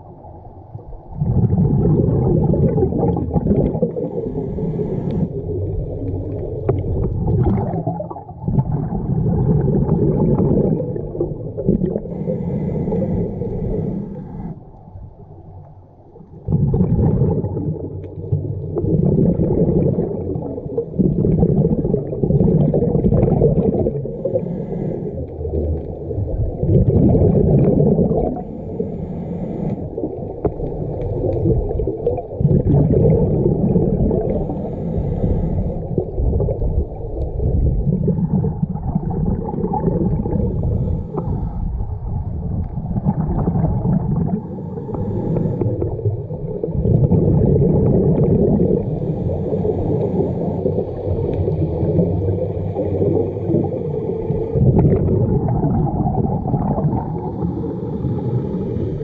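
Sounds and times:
underwater bubbles gurgling: 0:00.0 - 0:59.0.

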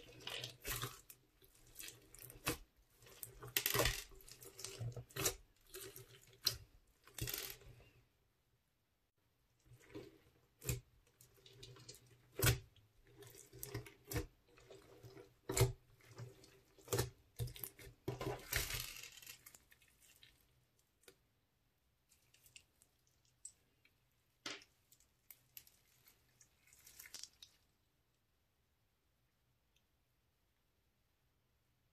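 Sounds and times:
slime squishing: 0:00.0 - 0:08.0, 0:09.6 - 0:21.2, 0:22.0 - 0:27.8.

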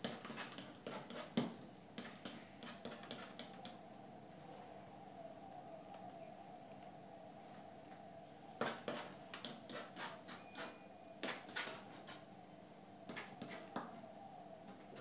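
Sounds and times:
palette knife scraping paint: 0:00.0 - 0:01.4, 0:02.0 - 0:03.6, 0:08.6 - 0:12.3
faint hum: 0:00.0 - 0:15.0.

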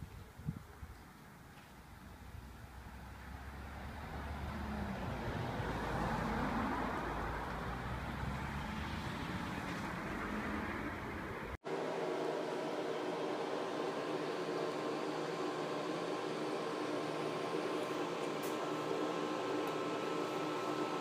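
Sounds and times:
road vehicle engine and tyres: 0:01.0 - 0:11.6.

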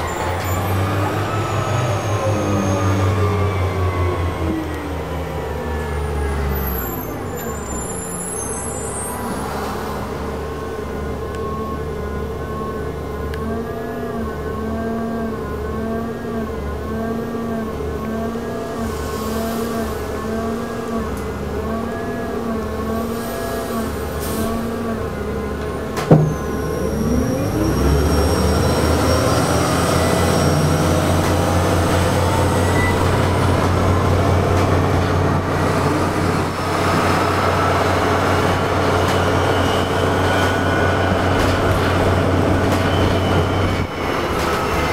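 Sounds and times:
bus drive warbling hum: 0:00.0 - 0:44.9
bus drive whine: 0:00.0 - 0:44.9
loud knock: 0:26.1 - 0:26.5.

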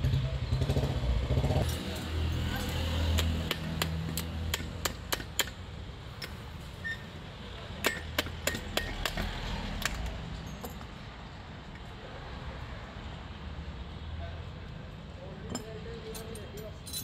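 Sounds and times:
metallic clicks and clinks: 0:15.4 - 0:17.0.

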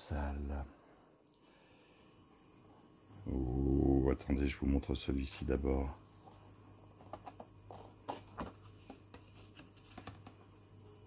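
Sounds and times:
faint low hum: 0:00.0 - 0:11.0
plastic cup clicking and rustling: 0:07.0 - 0:10.4.

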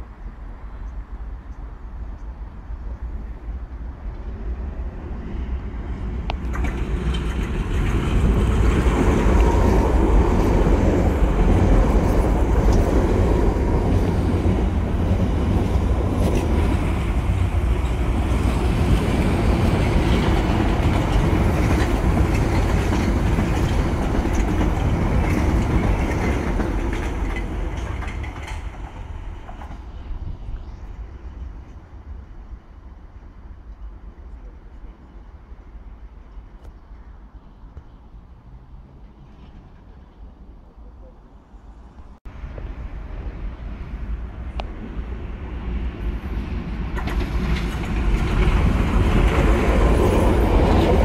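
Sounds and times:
train wheels rumbling on rails: 0:00.0 - 0:51.0
clickety-clack of rail joints: 0:04.0 - 0:31.8, 0:37.7 - 0:41.2, 0:41.9 - 0:51.0.

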